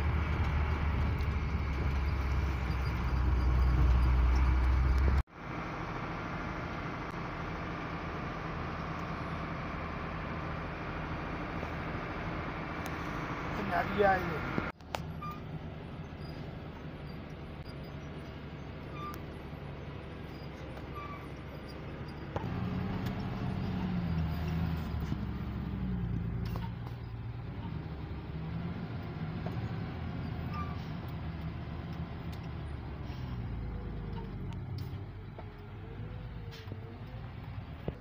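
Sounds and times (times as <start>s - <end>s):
truck diesel engine under load: 0.0s - 38.0s.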